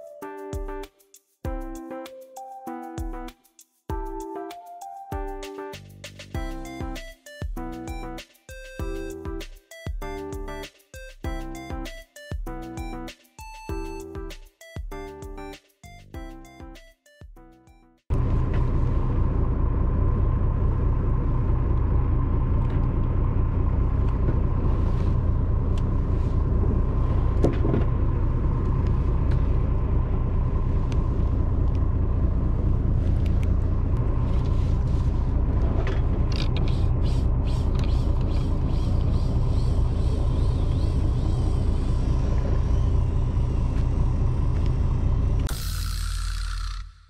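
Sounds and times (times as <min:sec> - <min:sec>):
boat engine rumbling: 0:18.1 - 0:45.5.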